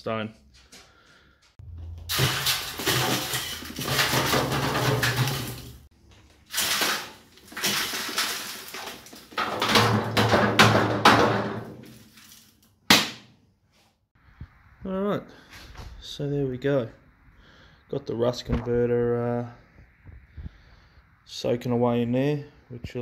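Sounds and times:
soil pouring into metal bin: 0:02.0 - 0:05.8, 0:06.5 - 0:09.4.

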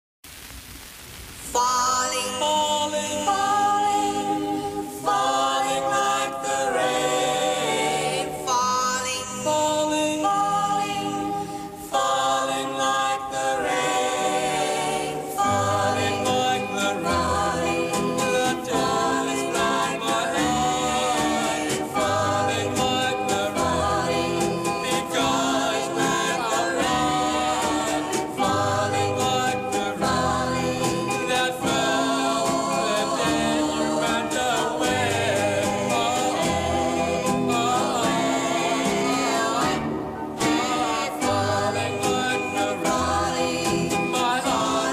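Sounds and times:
vocal group singing in harmony: 0:01.5 - 0:44.9.

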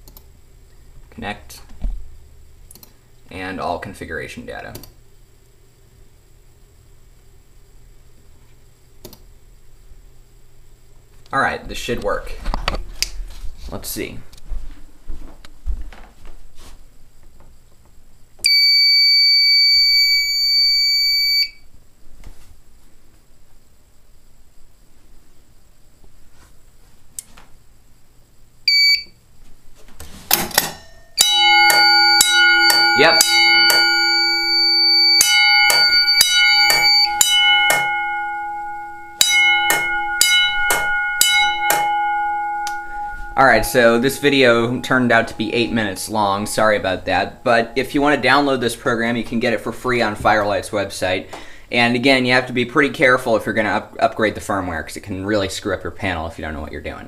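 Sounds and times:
high-pitched alarm panel beep: 0:18.4 - 0:21.6, 0:28.7 - 0:29.2, 0:31.2 - 0:47.8
gong humming: 0:31.2 - 0:48.5.

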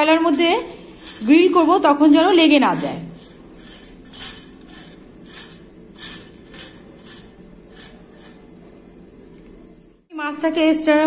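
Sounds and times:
brush scraping wire mesh: 0:00.0 - 0:08.7.

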